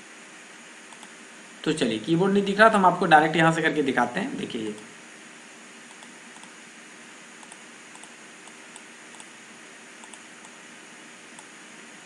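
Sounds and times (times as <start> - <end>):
keyboard and mouse clicks: 0.9 - 1.2, 7.4 - 9.3, 10.0 - 10.6.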